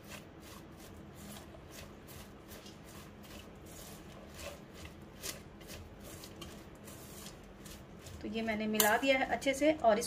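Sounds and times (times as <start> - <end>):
cabbage shreds rustling in bowl: 0.0 - 8.8.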